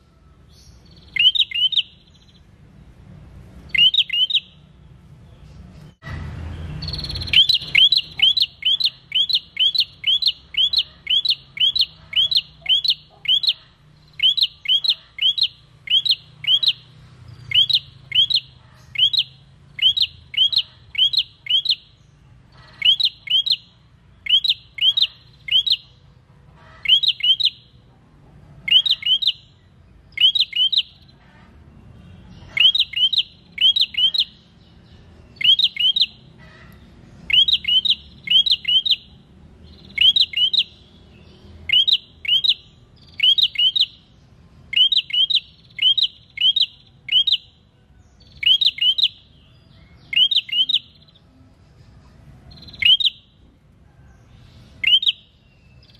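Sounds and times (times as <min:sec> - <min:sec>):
bird calling sharp notes: 0:00.0 - 0:02.5, 0:03.6 - 0:04.7, 0:06.7 - 0:26.0, 0:26.6 - 0:27.8, 0:28.6 - 0:31.1, 0:32.3 - 0:34.5, 0:35.3 - 0:41.0, 0:41.6 - 0:44.1, 0:44.7 - 0:47.5, 0:48.3 - 0:51.2, 0:52.5 - 0:53.4, 0:54.8 - 0:55.9.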